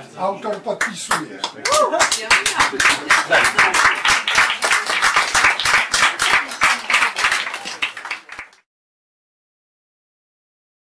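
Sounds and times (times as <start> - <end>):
small audience applauding: 0.8 - 8.7.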